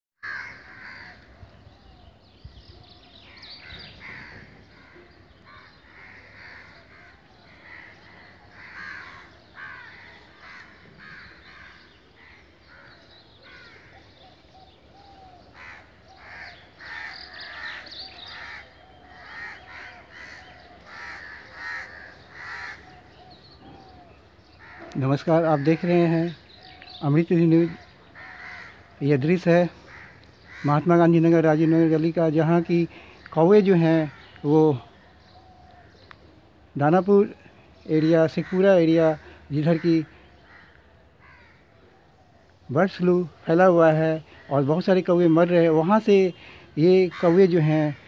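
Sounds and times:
crows cawing: 0.2s - 1.8s, 2.8s - 36.2s, 37.3s - 48.0s.

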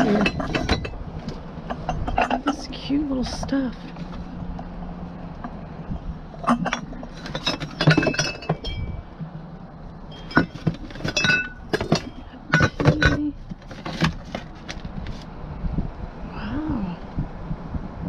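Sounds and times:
glass decorations clinking: 6.4s - 9.1s, 10.1s - 13.3s.

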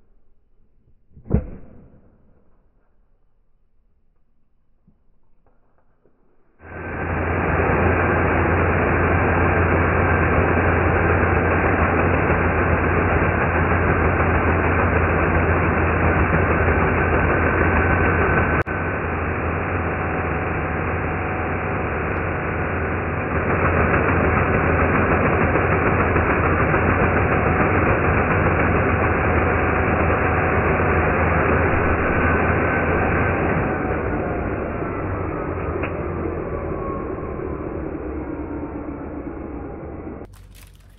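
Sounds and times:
electric chainsaw cutting branch: 6.6s - 34.9s, 40.2s - 40.9s.

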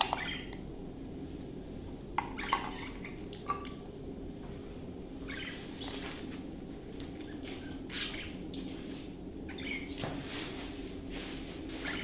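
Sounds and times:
budgerigar chirp: 0.0s - 0.5s, 5.3s - 6.0s, 7.6s - 8.4s
budgerigars fluttering: 5.3s - 6.3s, 7.2s - 10.1s, 11.7s - 12.0s.

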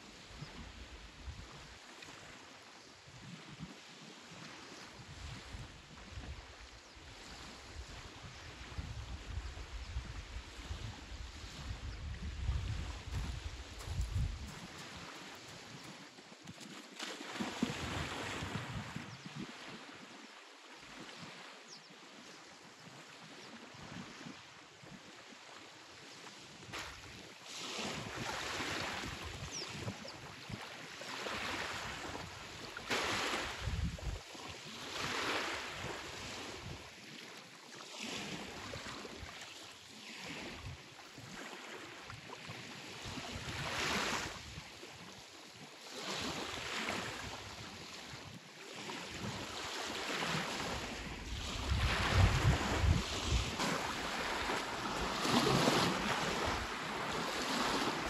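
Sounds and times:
small waves on shingle beach: 0.0s - 58.0s
splashing through shallow water: 12.8s - 18.8s, 49.2s - 58.0s.

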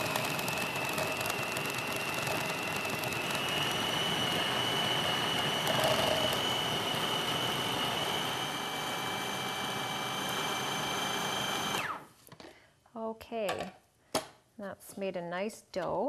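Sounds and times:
food processor motor whining: 0.0s - 12.1s.

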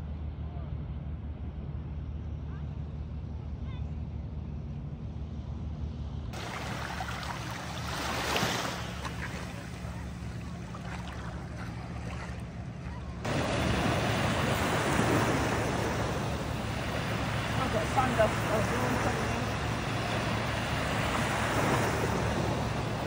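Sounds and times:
low motor hum: 0.0s - 23.0s
rushing water or wind: 6.3s - 23.0s.

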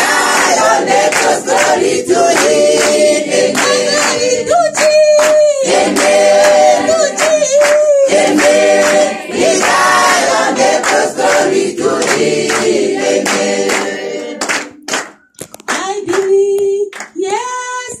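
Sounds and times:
women singing gospel: 0.0s - 14.8s
hand claps: 0.0s - 17.2s.

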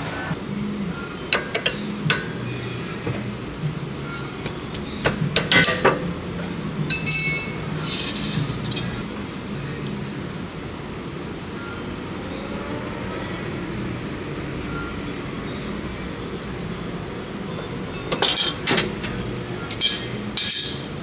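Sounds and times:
ringing metallic clinks: 6.9s - 9.0s, 17.9s - 20.9s.

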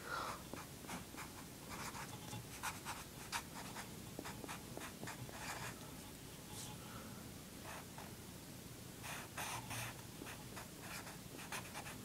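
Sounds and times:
marker scratching on paper: 0.9s - 5.8s, 9.0s - 12.0s.

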